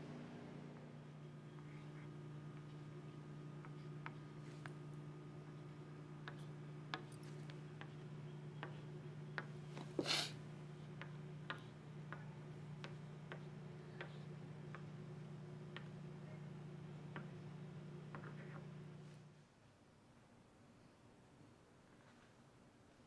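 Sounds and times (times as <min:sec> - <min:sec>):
steady low hum: 0:00.0 - 0:19.4
crayon ticking on wood: 0:05.7 - 0:09.6, 0:10.7 - 0:15.0, 0:15.6 - 0:16.0.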